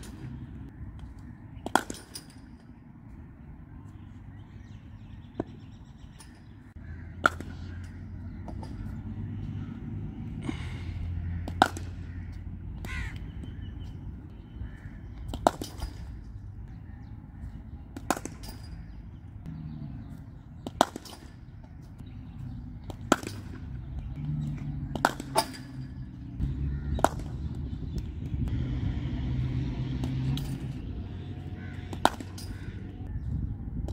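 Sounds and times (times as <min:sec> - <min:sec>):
cricket bat striking ball: 0:07.2 - 0:08.9, 0:11.4 - 0:13.3, 0:20.6 - 0:21.4, 0:22.9 - 0:23.6, 0:24.9 - 0:25.9, 0:26.9 - 0:27.5, 0:31.8 - 0:32.8.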